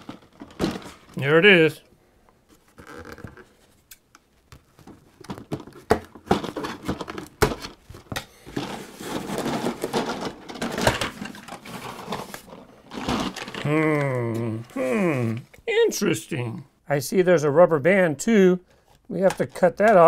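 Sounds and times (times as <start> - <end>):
cardboard and plastic rustling: 0.0 - 1.3, 2.4 - 14.8.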